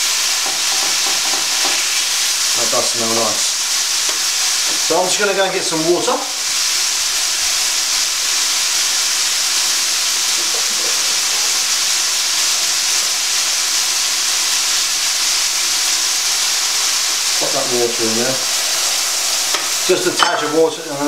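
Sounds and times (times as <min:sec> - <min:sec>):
chicken sizzling in a frying pan: 0:00.0 - 0:21.0.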